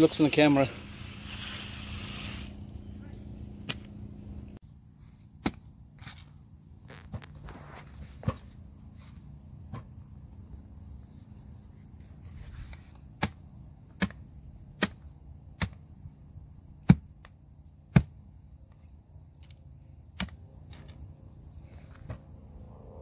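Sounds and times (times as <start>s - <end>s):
knife chopping roots: 5.4s - 5.7s, 12.9s - 16.0s, 16.7s - 18.3s, 19.4s - 20.9s.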